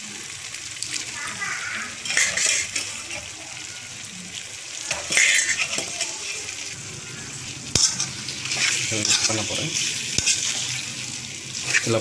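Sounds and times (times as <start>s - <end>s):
food sizzling as it fries: 0.0s - 12.0s
ladle scraping a metal pan: 2.0s - 3.4s, 4.9s - 6.7s, 7.7s - 10.9s, 11.6s - 12.0s.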